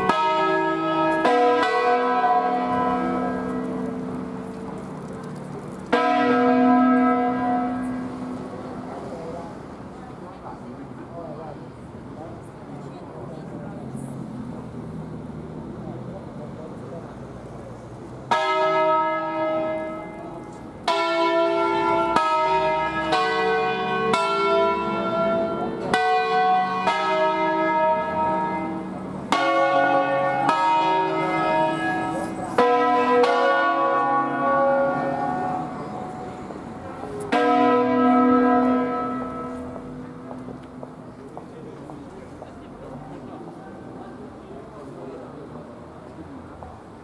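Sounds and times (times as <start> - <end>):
church bells pealing: 0.0 - 10.8, 18.3 - 42.1.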